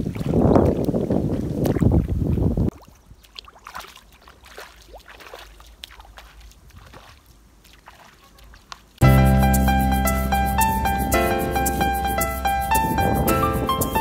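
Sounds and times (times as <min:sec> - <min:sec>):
bare feet splashing in water: 0:00.0 - 0:09.0
loud piano music: 0:09.0 - 0:14.0.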